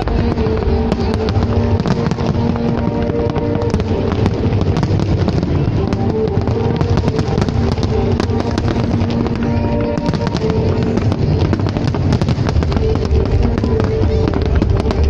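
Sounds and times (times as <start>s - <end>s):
fireworks crackling and popping: 0.0s - 15.0s
loud music with held notes: 0.0s - 15.0s.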